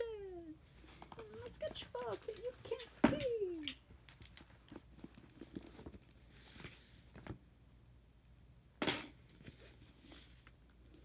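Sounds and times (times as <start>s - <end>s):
soft rustle: 4.2s - 7.6s, 9.3s - 11.0s.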